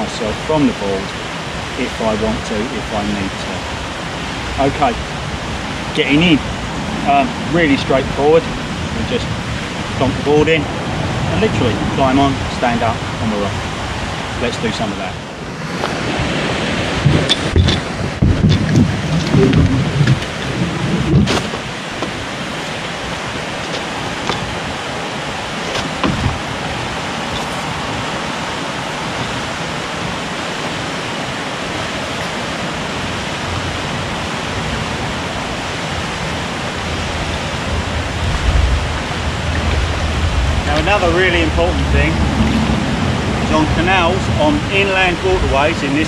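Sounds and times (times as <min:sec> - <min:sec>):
steady rushing hiss: 0:00.0 - 0:46.0
paddleboard bumping and knocking: 0:17.0 - 0:22.9, 0:25.6 - 0:26.8.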